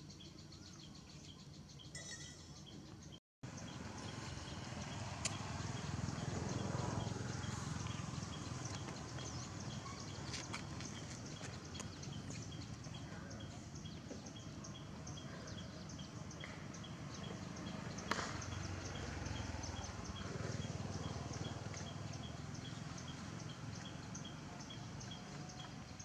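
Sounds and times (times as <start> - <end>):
small high chirp: 1.9 - 2.6.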